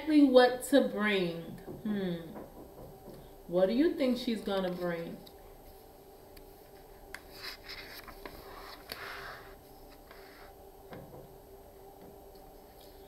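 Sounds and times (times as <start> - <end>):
paper page rustling: 6.6 - 10.5.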